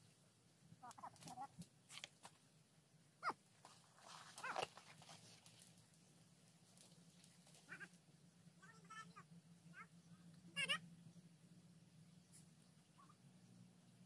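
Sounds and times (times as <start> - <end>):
high animal cries: 3.2 - 3.4, 7.6 - 8.0, 10.5 - 10.9.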